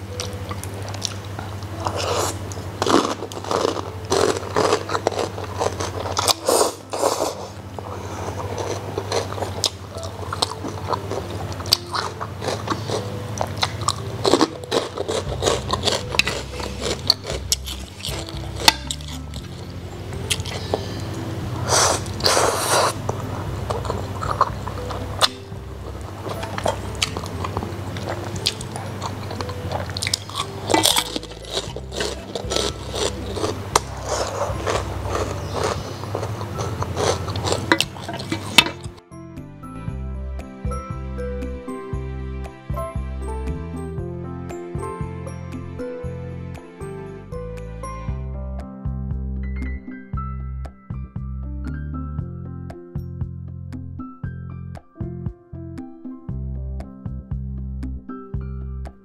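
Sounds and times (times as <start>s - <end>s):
quiet background music: 0.0s - 59.0s
wet chewing: 0.1s - 39.0s
noodles slurped: 1.8s - 25.4s, 26.2s - 39.0s.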